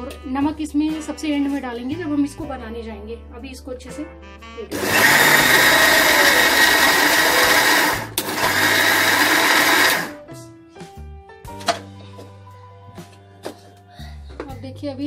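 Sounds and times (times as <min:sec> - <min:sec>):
electric mixer grinder running: 0:04.7 - 0:10.2.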